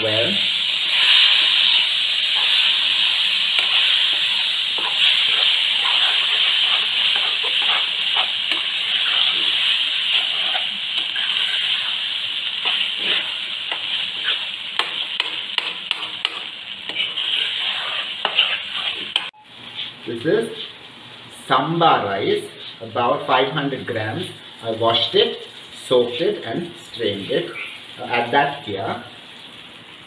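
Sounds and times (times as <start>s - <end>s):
food sizzling in a wok: 0.0s - 30.0s
spatula scraping a pan: 0.9s - 20.0s.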